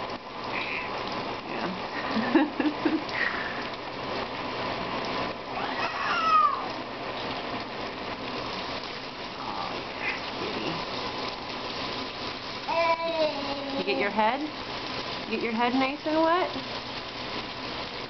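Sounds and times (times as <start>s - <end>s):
shower water spraying: 0.0s - 18.0s
cat meowing: 0.5s - 1.0s, 5.5s - 6.7s.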